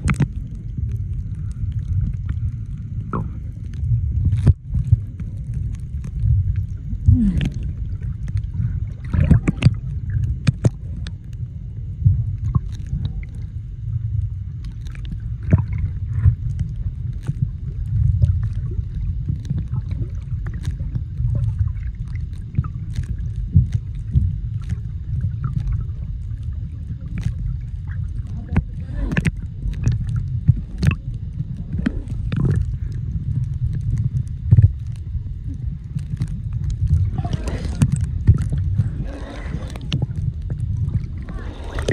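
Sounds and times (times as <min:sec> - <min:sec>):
short clicks and crackles: 0:00.0 - 0:02.4, 0:28.3 - 0:35.0
underwater water rumble: 0:00.0 - 0:41.9.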